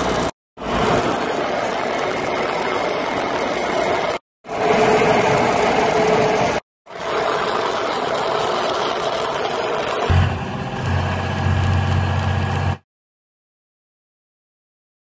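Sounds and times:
welding arc crackling: 9.8 - 12.8.

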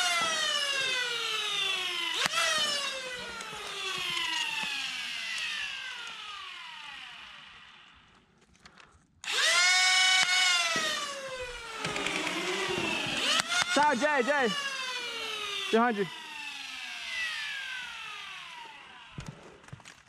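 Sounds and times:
blaster motors whining: 10.3 - 19.1.

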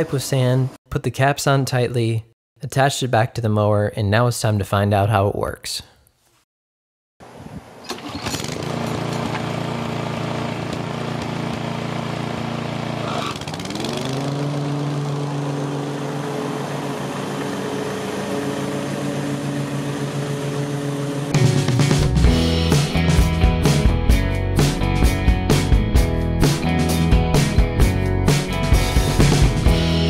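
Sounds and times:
lawn mower engine running: 7.2 - 23.2.

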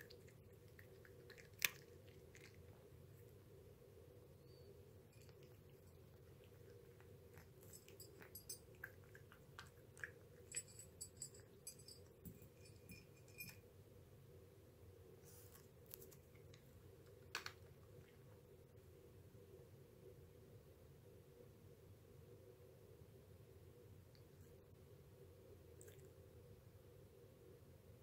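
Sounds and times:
cat chewing food: 0.0 - 3.6, 5.0 - 12.2, 25.7 - 26.2.

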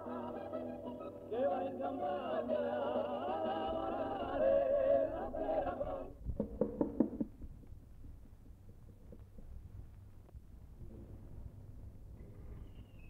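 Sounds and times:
music with singing voices: 0.0 - 6.1.

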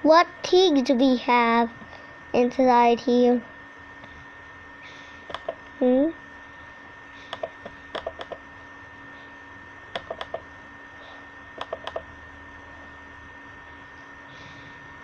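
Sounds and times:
faint electrical whine: 0.0 - 15.0
computer mouse double-clicking: 5.3 - 5.6, 7.3 - 8.4, 9.9 - 10.4, 11.6 - 12.1.

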